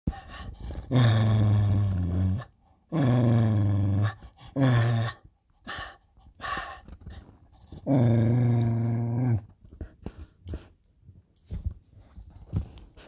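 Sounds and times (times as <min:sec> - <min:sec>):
dog growling: 0:00.3 - 0:05.9, 0:07.6 - 0:09.6.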